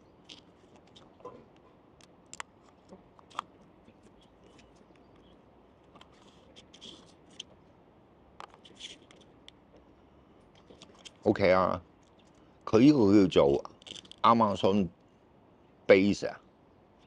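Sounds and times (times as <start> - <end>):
plastic packaging clicks: 13.7 - 14.2.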